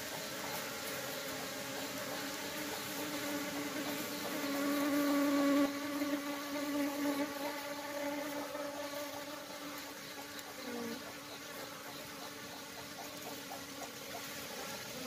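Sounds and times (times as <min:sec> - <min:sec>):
honeybees buzzing: 0:00.0 - 0:15.0.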